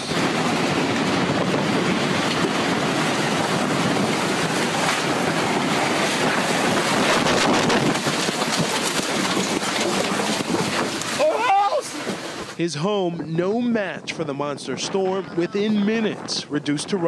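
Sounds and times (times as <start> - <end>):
loud rushing tornado wind: 0.0 - 17.0
wind buffeting microphone: 0.0 - 17.0.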